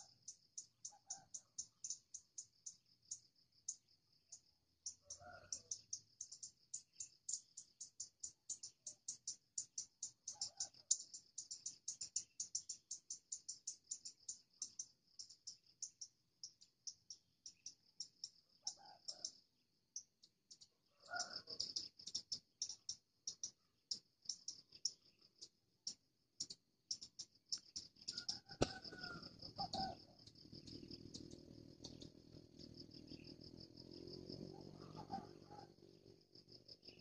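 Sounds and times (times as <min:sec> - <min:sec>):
high-pitched insect ticking: 0:00.0 - 0:34.9
junglefowl clucks: 0:28.1 - 0:30.2, 0:34.5 - 0:35.8.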